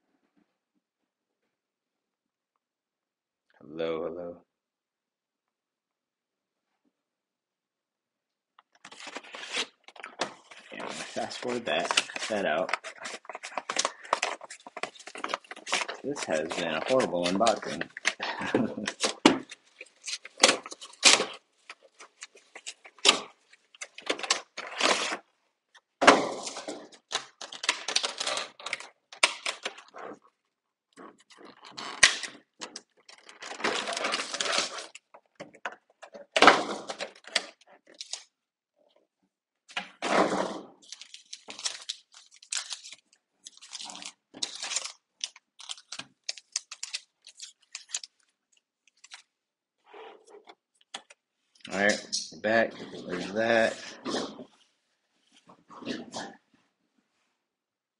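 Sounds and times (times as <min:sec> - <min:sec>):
cardboard and plastic rustling: 0:08.7 - 0:25.2, 0:31.0 - 0:38.2, 0:40.0 - 0:49.3, 0:50.2 - 0:56.2.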